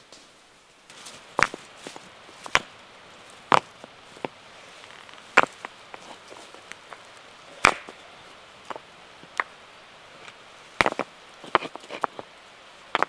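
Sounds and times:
dry grass rustling: 0.0 - 13.0
stones clacking together: 1.3 - 2.8, 3.4 - 8.0, 8.6 - 9.6, 10.2 - 12.3
stone scrapes and clicks: 10.2 - 12.3.

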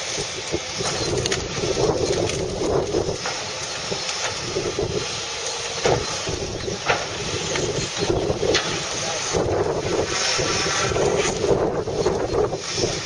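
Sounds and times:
engine and hydraulics running: 0.0 - 13.0
branches snapping: 0.7 - 4.5.

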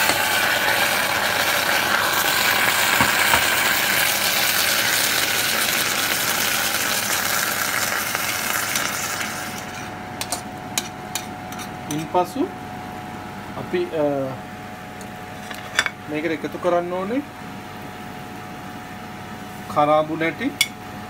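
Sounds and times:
water sizzling in hot pan: 0.0 - 9.9.

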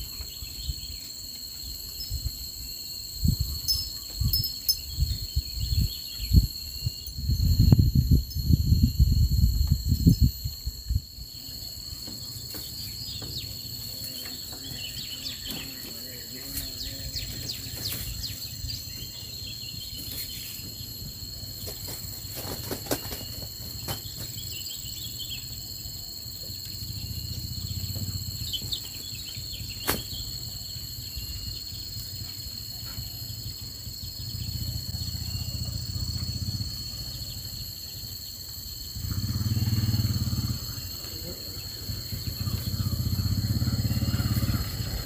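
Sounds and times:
bird chirps: 0.0 - 8.4, 11.3 - 21.9
insects buzzing: 0.0 - 45.0
small motorcycle engine droning: 26.4 - 38.0, 38.9 - 45.0.

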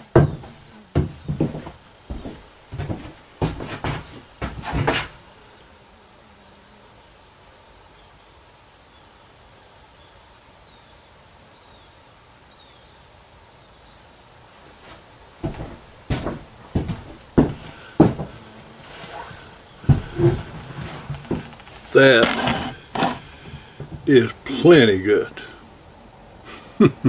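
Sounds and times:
footsteps on wooden floor: 0.0 - 5.2, 14.8 - 24.6.

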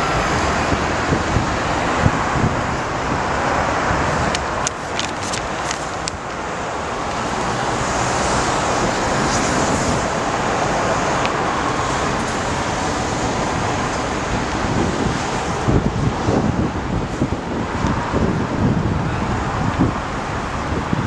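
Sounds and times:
road traffic: 0.0 - 21.0
wind on microphone: 0.0 - 21.0
paper poster crackling: 4.8 - 6.0.

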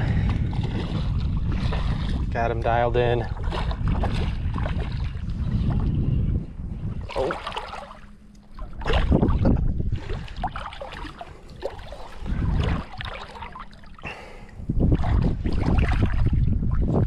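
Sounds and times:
shallow water splashing: 0.0 - 6.1, 6.8 - 17.0
wind rumbling on microphone: 0.0 - 17.0
water drips and trickles: 7.2 - 17.0.

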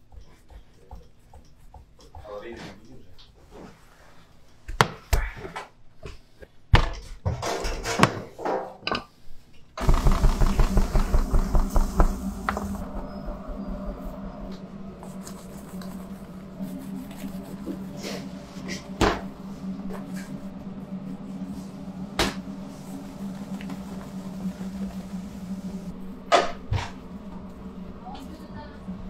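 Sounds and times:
fast repeated tapping: 9.8 - 13.8
steady hum: 9.8 - 29.0.

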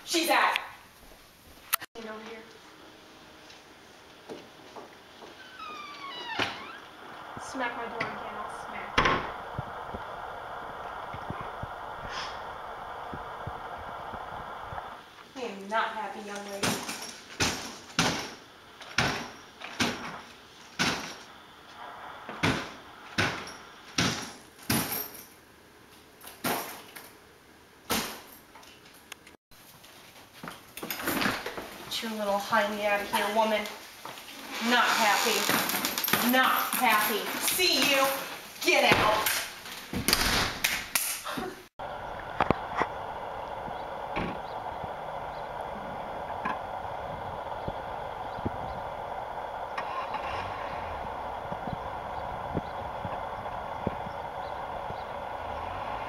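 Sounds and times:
car engine humming: 41.8 - 56.0.

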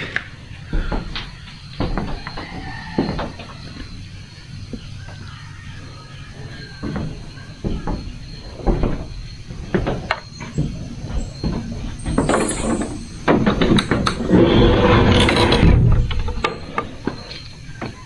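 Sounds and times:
footsteps on wooden floor: 0.6 - 4.0, 6.4 - 13.2.

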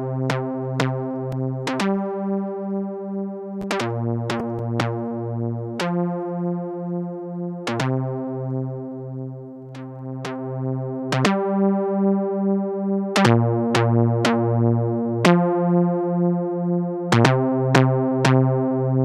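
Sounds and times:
synthesizer sawtooth notes: 3.6 - 6.3.

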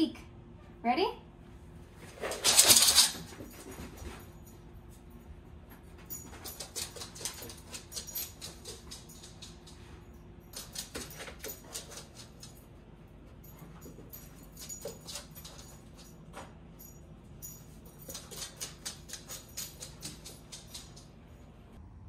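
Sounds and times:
dog claws clicking on hard floor: 2.1 - 4.0, 6.2 - 9.9, 10.6 - 12.6, 14.6 - 16.1, 17.9 - 21.2.

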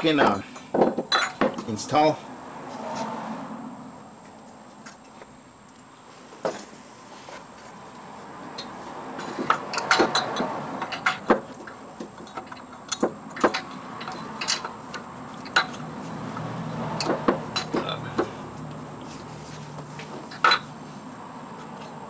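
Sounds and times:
metallic clicks and knocks of tools: 8.5 - 18.8.

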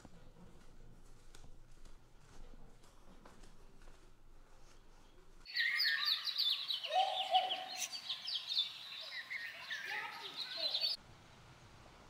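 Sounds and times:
birds chirping: 5.5 - 11.0.

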